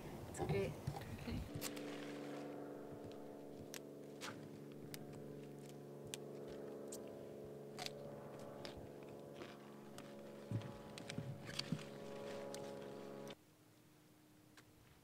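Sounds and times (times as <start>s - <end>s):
pruning shears snipping stems: 1.5s - 2.6s, 3.7s - 13.4s.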